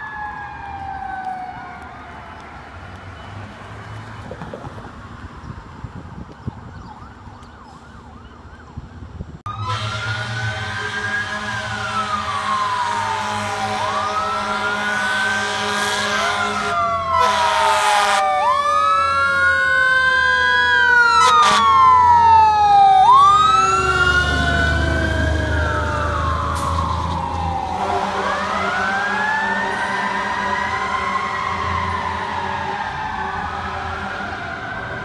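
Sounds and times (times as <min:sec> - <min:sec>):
fire engine siren wailing: 0:00.0 - 0:35.0
truck engine rumbling: 0:00.0 - 0:35.0
fire engine horn blast: 0:09.5 - 0:18.6, 0:21.0 - 0:22.3, 0:23.5 - 0:32.7.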